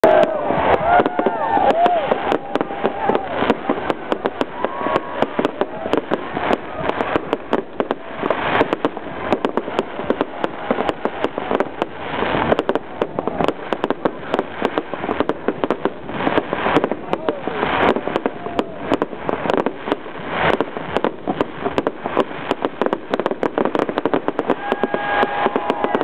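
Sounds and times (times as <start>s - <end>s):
fireworks bangs and crackling: 0.0s - 26.0s.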